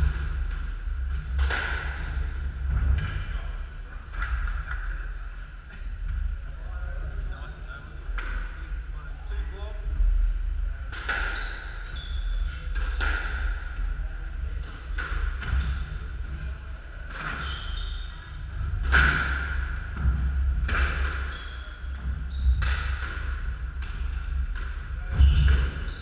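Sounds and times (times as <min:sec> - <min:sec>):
squash ball hitting rackets and walls: 0:00.0 - 0:03.3, 0:12.6 - 0:13.8, 0:18.6 - 0:26.0
steady low hum: 0:00.0 - 0:26.0.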